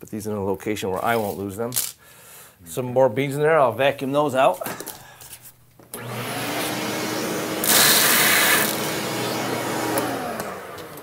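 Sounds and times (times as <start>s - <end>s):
shop vacuum motor whining: 5.9s - 11.0s
rush of vacuum suction: 6.0s - 10.8s.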